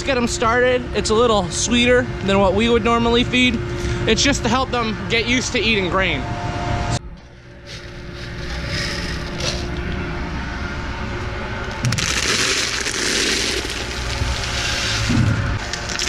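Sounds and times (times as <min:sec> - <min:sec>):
metal scoop scraping in grain: 0:07.7 - 0:09.7, 0:12.0 - 0:15.1
dry grain pouring: 0:11.9 - 0:16.0.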